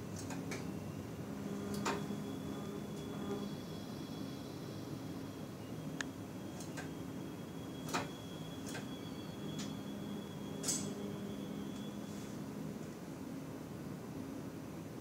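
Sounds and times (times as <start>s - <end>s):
train cab low hum: 0.0s - 15.0s
faint high steady tone: 0.7s - 13.2s.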